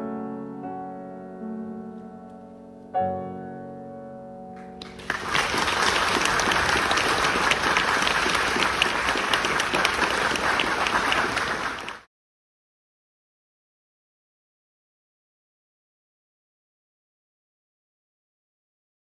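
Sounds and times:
piano chord ringing: 0:00.0 - 0:05.2
audience applause: 0:04.8 - 0:12.1.

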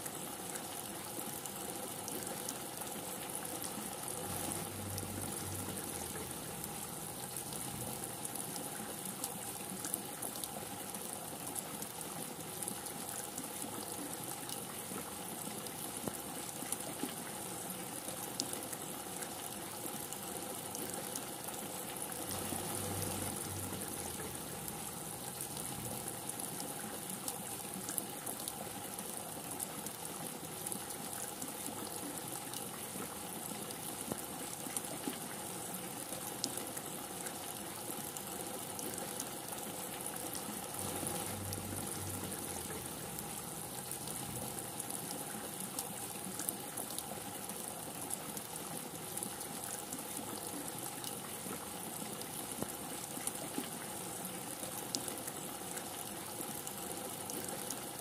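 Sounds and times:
heavy rain: 0:01.4 - 0:12.0, 0:20.0 - 0:31.2, 0:35.3 - 0:53.2.

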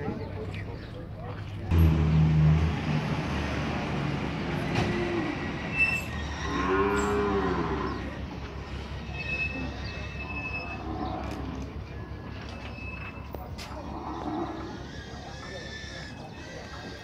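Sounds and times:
cattle mooing: 0:06.1 - 0:08.1.

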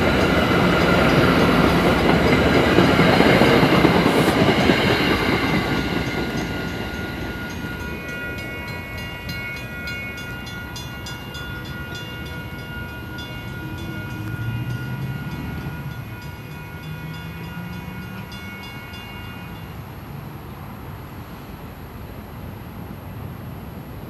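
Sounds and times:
train rail clicks: 0:00.0 - 0:10.4.

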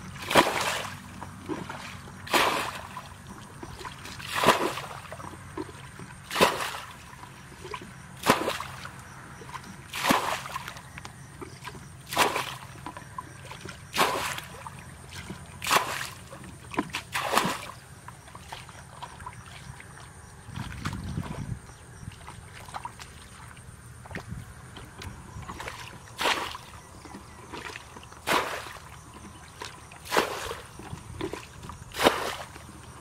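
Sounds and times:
bucket splashing water: 0:00.2 - 0:08.9, 0:09.5 - 0:10.8, 0:11.4 - 0:19.8, 0:25.4 - 0:33.0.

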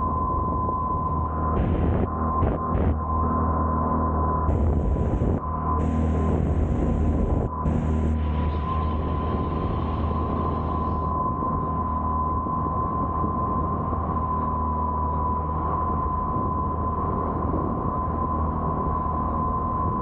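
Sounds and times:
boat engine drone: 0:00.0 - 0:20.0
high engine whine: 0:00.0 - 0:20.0.

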